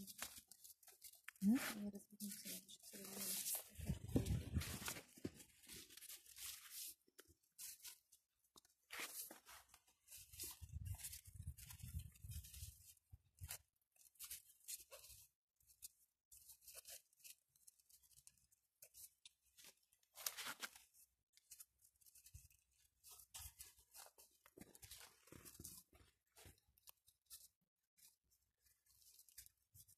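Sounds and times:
leaves rustling and crackling: 10.1s - 15.1s.

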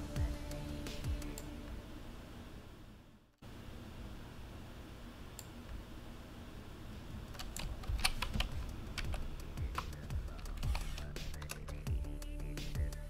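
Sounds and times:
low steady hum: 0.0s - 13.0s
keyboard and mouse clicking: 7.3s - 11.9s.

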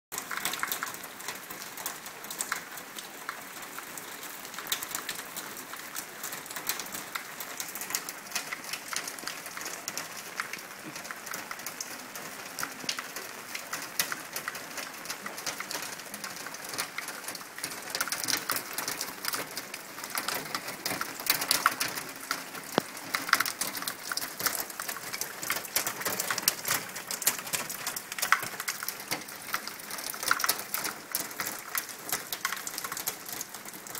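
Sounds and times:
rainwater splashing and dripping: 0.1s - 33.9s.

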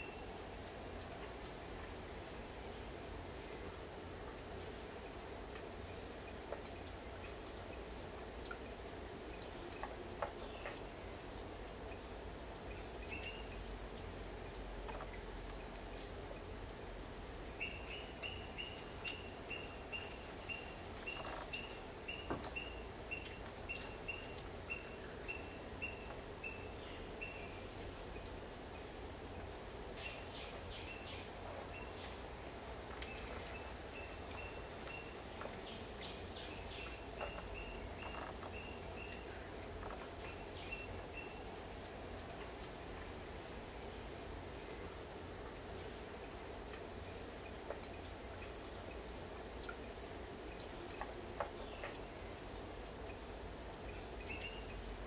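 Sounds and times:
small bird chirping: 33.0s - 41.5s.

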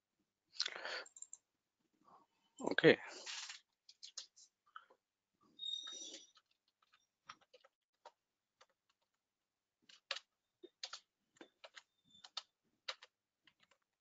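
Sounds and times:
computer keyboard typing: 1.0s - 1.4s, 6.0s - 9.0s, 9.8s - 14.0s.

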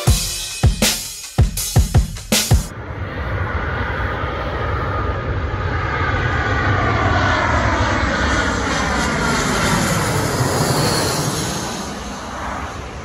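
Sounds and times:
jet airliner passing overhead: 2.7s - 13.0s.

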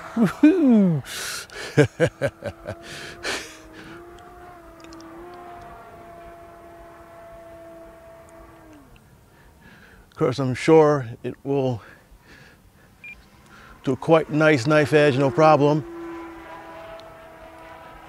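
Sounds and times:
model plane propeller droning: 0.0s - 9.3s, 13.1s - 18.0s.

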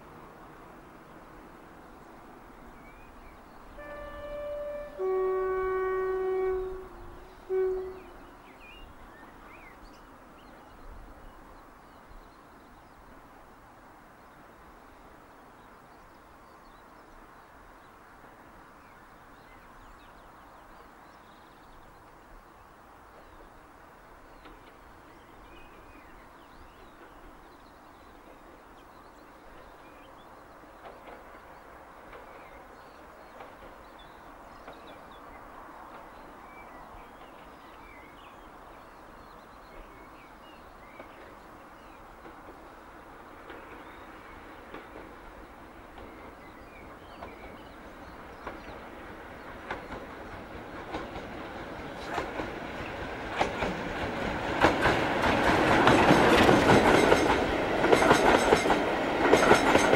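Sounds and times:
distant locomotive hum: 0.0s - 59.9s
locomotive horn: 3.8s - 8.2s.

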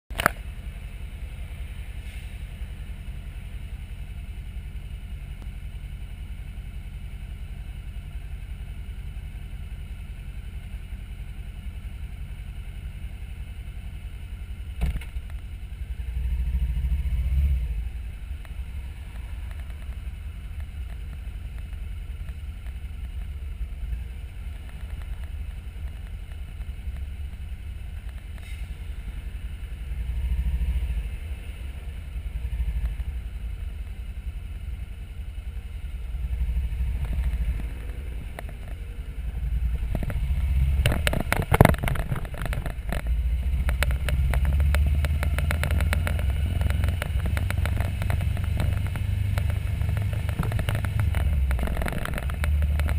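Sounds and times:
motorcycle engine: 0.1s - 52.9s
wheels clattering over tracks: 37.0s - 52.9s.

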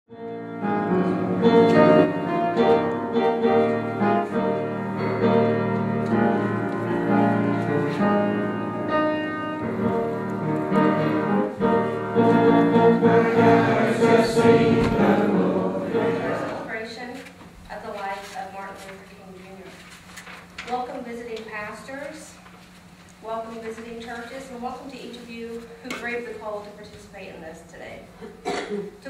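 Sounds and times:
piano sustained chords: 0.1s - 17.0s.

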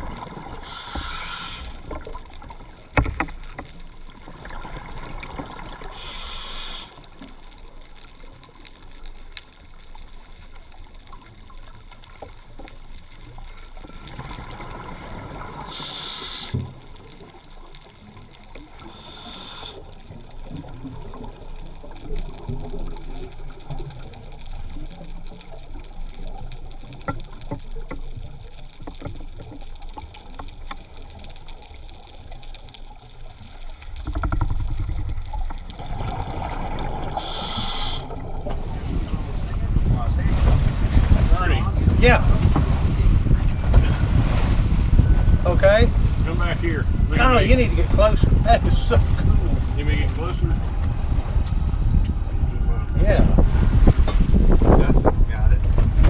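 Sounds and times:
muffled underwater rumble: 0.0s - 56.0s
hissing bubble bursts: 5.6s - 7.0s, 15.2s - 16.6s, 18.8s - 19.9s, 35.7s - 38.7s.

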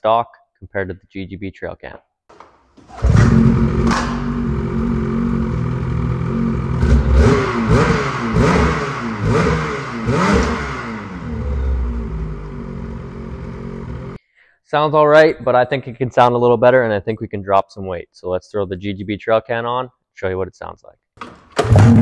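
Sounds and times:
snowmobile engine idling and revving: 3.0s - 14.2s.

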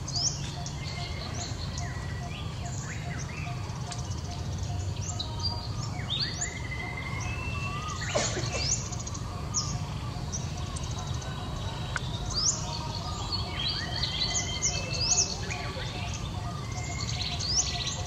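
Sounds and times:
small birds chirping: 0.0s - 18.0s.

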